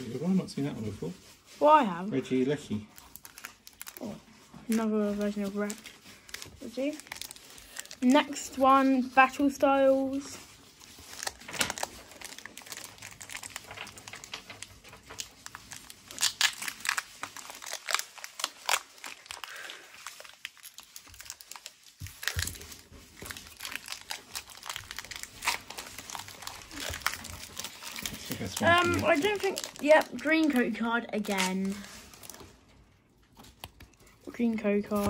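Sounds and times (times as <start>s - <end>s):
foil wrapper crinkling and tearing: 0.0s - 35.0s.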